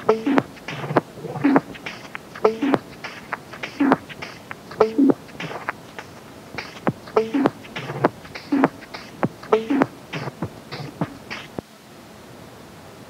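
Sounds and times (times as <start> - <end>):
short pitched vocal figure: 0.0 - 4.2
beatboxing mouth clicks and hits: 0.0 - 11.6.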